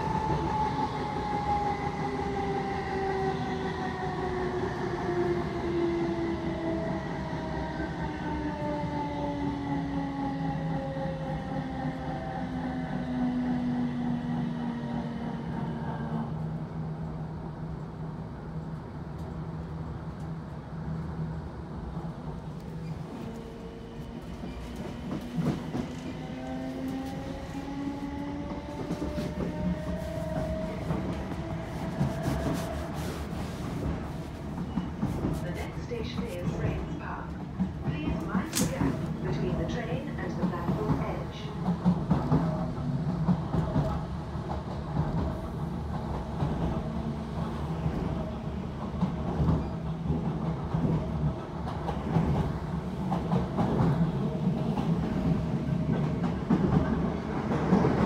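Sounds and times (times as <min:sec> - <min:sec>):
train wheels rumbling: 0:21.8 - 0:58.0
rail joint clicks: 0:33.9 - 0:46.8.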